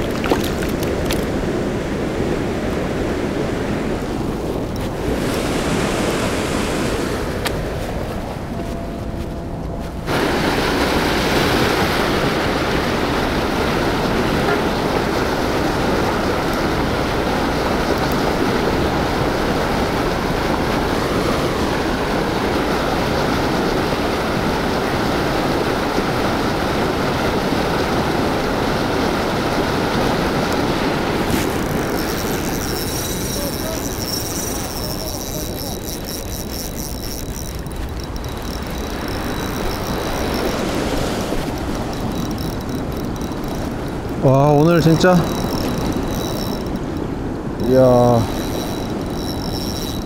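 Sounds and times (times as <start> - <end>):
churning river water rushing: 0.0 - 50.0.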